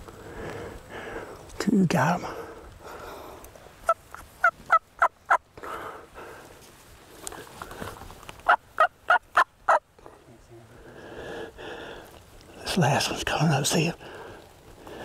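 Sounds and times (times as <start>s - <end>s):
turkey yelping: 3.8s - 5.4s, 8.4s - 9.9s.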